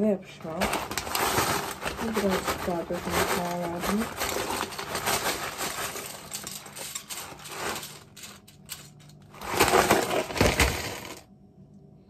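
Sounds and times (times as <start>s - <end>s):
cereal bag crinkling: 0.4s - 11.2s
cereal pouring into a bowl: 9.4s - 11.2s.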